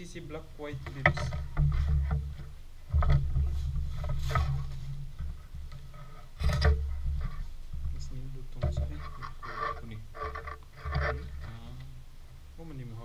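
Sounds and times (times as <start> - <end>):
fabric and wrapping rustling: 3.2 - 6.3.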